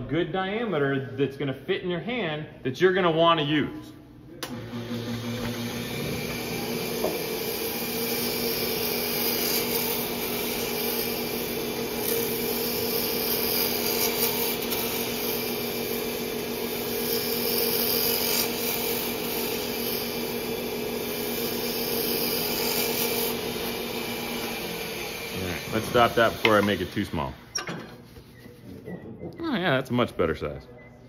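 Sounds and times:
wood lathe motor humming: 0:04.4 - 0:27.4
turning tool scraping wood: 0:05.2 - 0:29.0.

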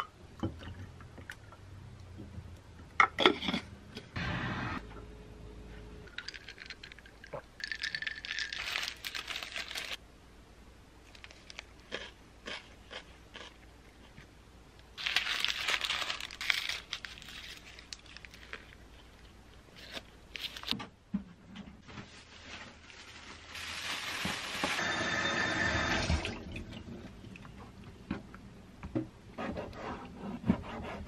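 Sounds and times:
paper wrapping crinkling: 0:08.3 - 0:10.0, 0:15.0 - 0:19.2, 0:19.8 - 0:20.8, 0:22.0 - 0:24.8.

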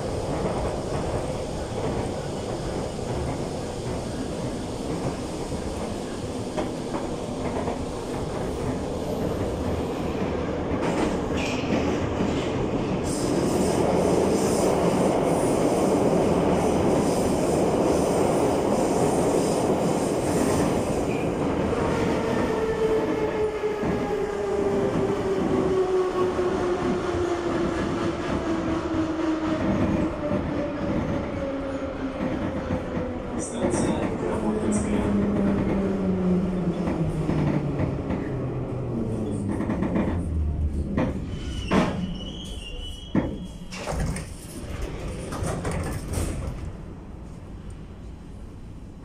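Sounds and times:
train wheels rumbling on track: 0:00.0 - 0:49.0.

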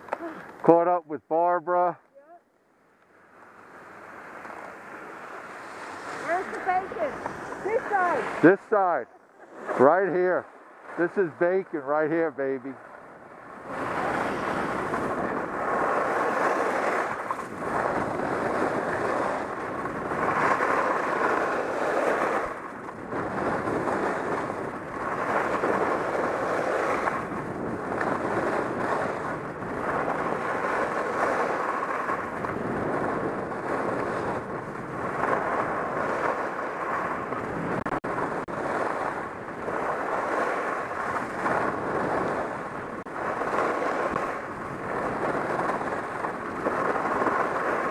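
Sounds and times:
wind rushing over microphone: 0:03.5 - 0:47.9
skis hissing on snow: 0:04.9 - 0:08.4.

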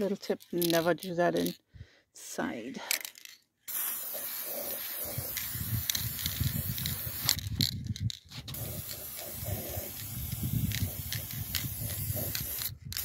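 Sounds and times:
spray paint can hissing: 0:03.7 - 0:13.0.

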